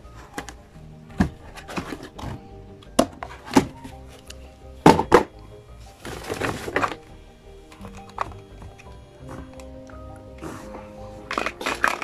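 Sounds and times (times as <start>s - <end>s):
background music: 0.0s - 12.0s
plastic parts knocking on cardboard: 0.2s - 3.9s, 4.8s - 5.3s.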